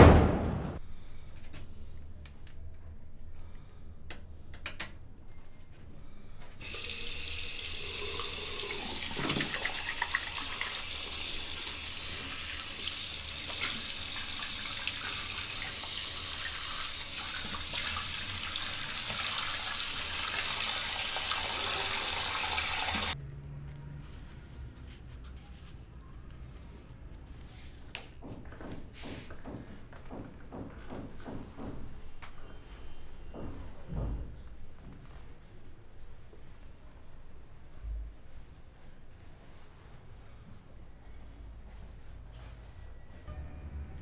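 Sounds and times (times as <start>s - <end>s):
tap running into basin: 6.6s - 11.7s
water splashing from face washing: 6.6s - 23.2s.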